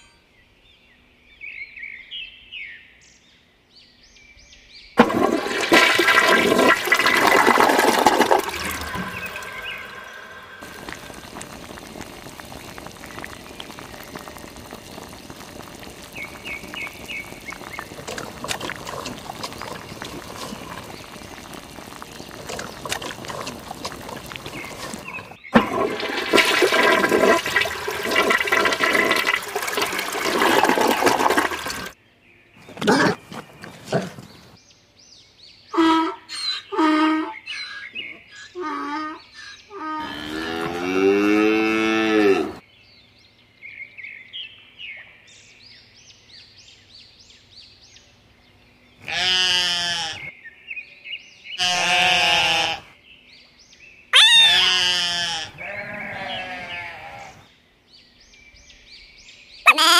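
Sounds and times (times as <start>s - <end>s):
water rushing and splashing: 5.0s - 32.0s.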